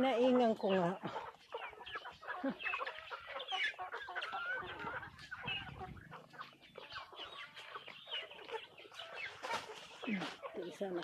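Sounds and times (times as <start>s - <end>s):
chickens clucking: 0.0s - 11.0s.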